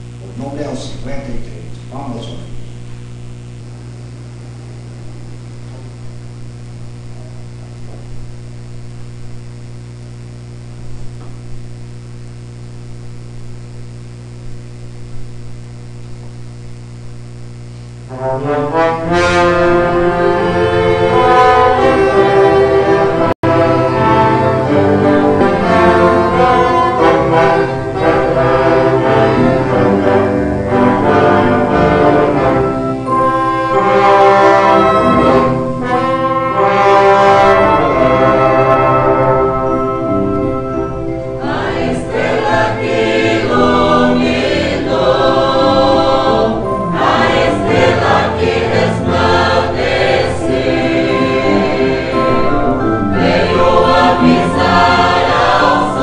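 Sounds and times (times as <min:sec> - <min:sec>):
electrical hum: 0:00.0 - 0:56.0
brass-led orchestra playing hymn: 0:18.1 - 0:56.0.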